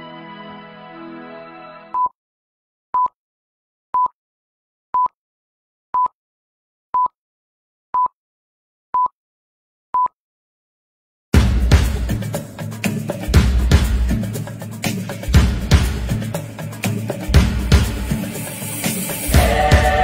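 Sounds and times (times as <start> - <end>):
short electronic beeps: 10.0 - 10.2
music with drums: 11.4 - 20.0.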